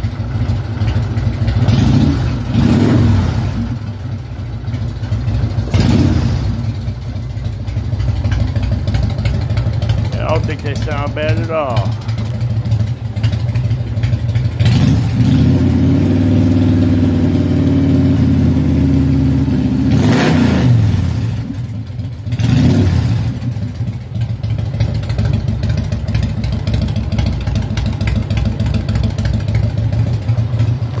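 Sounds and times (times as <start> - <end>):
motorcycle engine idling and revving: 0.0 - 31.0.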